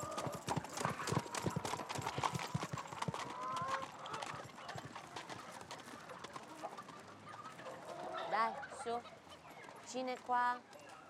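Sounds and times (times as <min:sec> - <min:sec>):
horse hooves clip-clopping on stone: 0:00.0 - 0:06.9.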